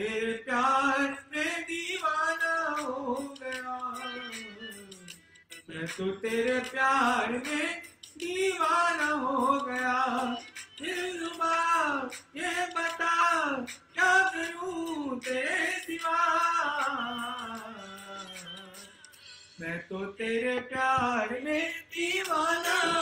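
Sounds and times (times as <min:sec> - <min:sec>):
man singing into microphone: 0:00.0 - 0:23.0
singer breathing: 0:05.1 - 0:05.5, 0:18.8 - 0:19.9.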